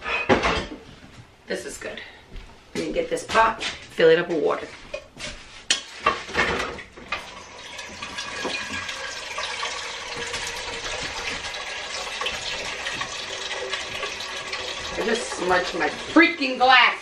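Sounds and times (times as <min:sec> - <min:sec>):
metal pot clanking: 0:05.7 - 0:16.2
tap water filling a pot: 0:06.5 - 0:16.6.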